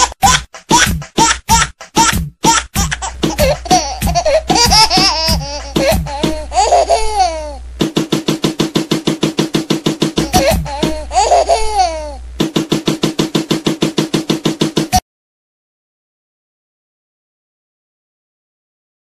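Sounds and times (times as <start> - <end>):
music with a fast beat: 0.0 - 7.0, 7.7 - 15.0
high-pitched laughter: 0.0 - 7.6, 10.2 - 12.2.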